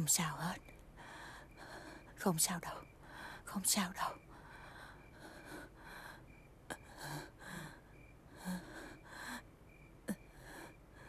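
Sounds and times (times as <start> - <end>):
woman breathing heavily: 0.9 - 2.2, 3.0 - 3.5, 4.2 - 11.0.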